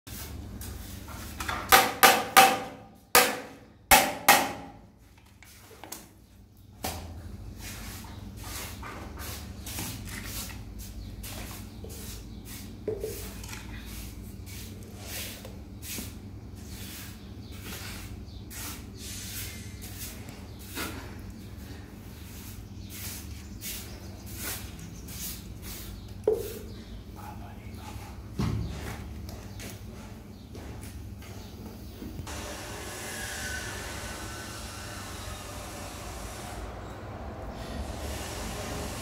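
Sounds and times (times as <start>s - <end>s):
tool knocking hollow plastic: 1.7s - 4.8s.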